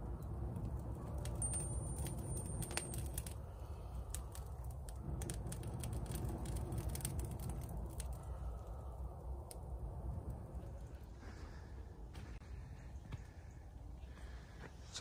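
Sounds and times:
campfire crackling and popping: 0.0 - 11.1
low rumble: 0.0 - 15.0.

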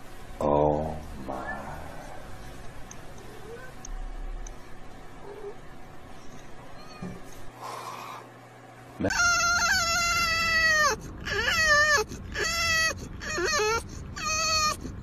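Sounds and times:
dog whining: 3.2 - 3.8, 5.2 - 5.7, 9.0 - 15.0.

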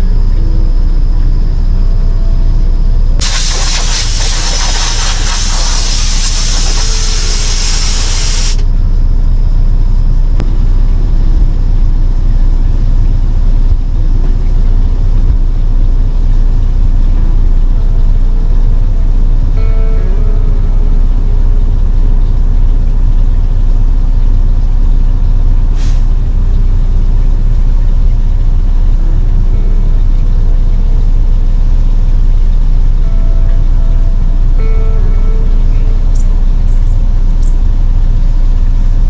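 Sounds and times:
diesel engine idling: 0.0 - 39.0
loud hiss: 3.2 - 8.7.

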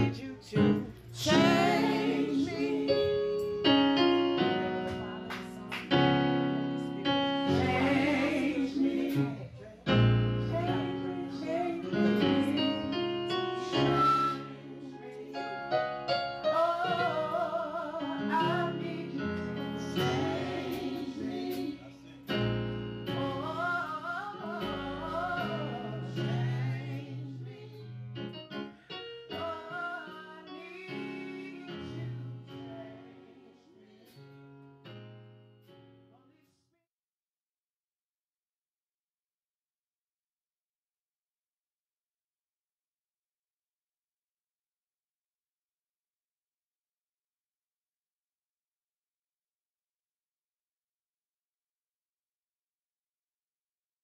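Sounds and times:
person singing with vibrato: 0.0 - 3.8, 16.4 - 22.0, 23.1 - 28.0, 29.3 - 34.3
piano chords: 0.0 - 36.2.

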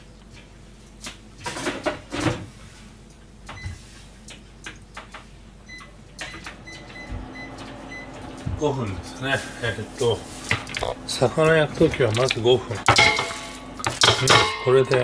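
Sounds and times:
kitchenware clattering: 11.5 - 15.0.

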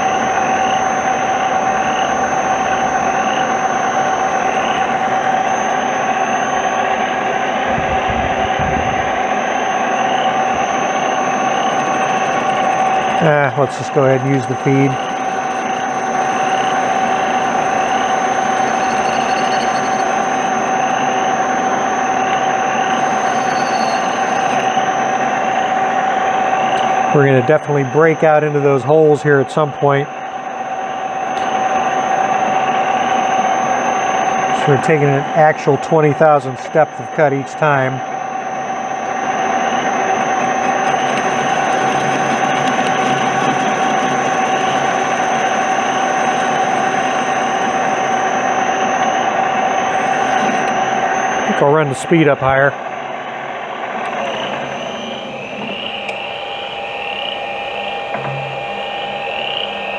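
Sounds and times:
lathe machine hum: 0.0 - 59.9
faint rising squeak: 1.9 - 21.4, 22.1 - 25.0, 54.0 - 59.9.

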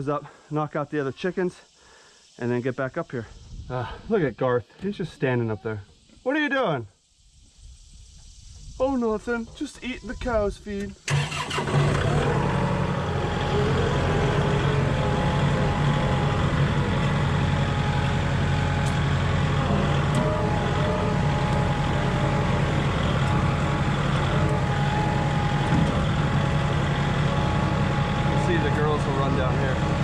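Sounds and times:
tractor diesel engine running: 11.1 - 30.0.

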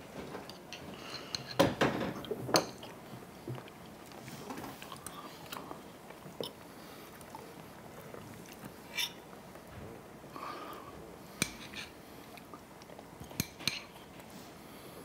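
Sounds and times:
chewing: 2.2 - 9.2.

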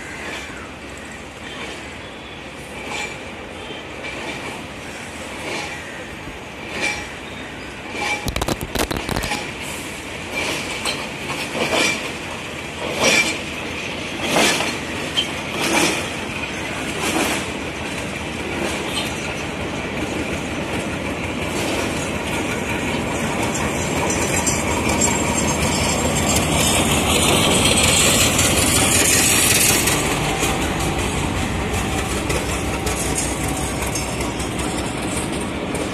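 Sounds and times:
locomotive engine and fan noise: 0.0 - 35.9
wheels clacking over rail joints: 6.6 - 35.9.

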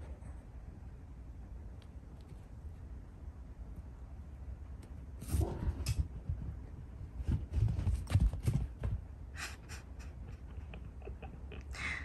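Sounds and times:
cat paws thumping on mats: 5.2 - 9.2.

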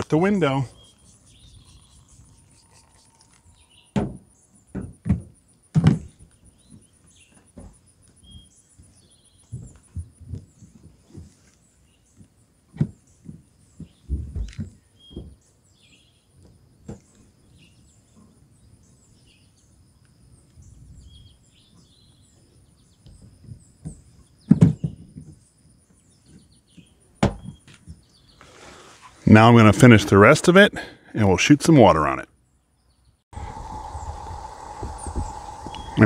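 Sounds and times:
birds chirping: 0.0 - 4.8, 31.9 - 36.0.

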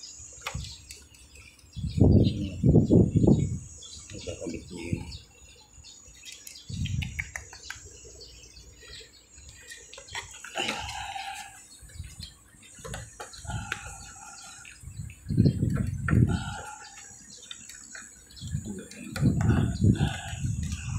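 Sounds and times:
birds chirping: 0.0 - 20.9
low dull thumps: 19.1 - 20.9.

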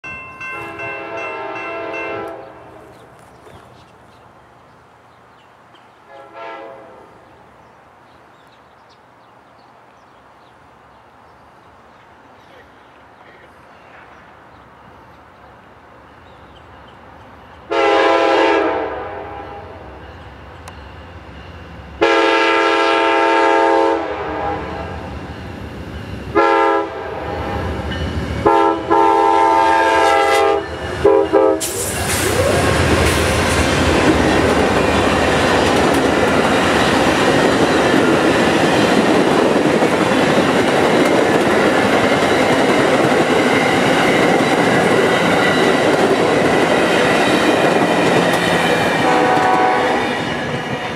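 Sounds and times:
diesel locomotives passing: 0.0 - 50.9
train horn blasts: 0.5 - 3.0, 6.1 - 7.2, 17.7 - 20.0, 22.0 - 25.2, 26.3 - 27.8, 28.4 - 31.8, 49.0 - 50.9
train wheels clacking on rails: 30.0 - 50.9.

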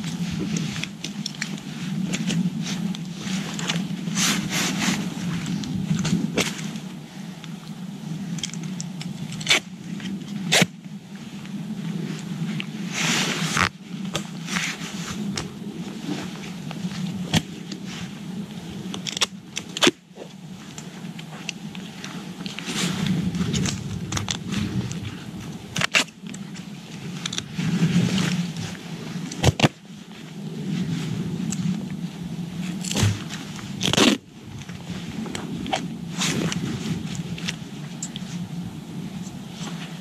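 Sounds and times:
duct tape ripping and crinkling: 29.4 - 29.8, 33.8 - 34.2.

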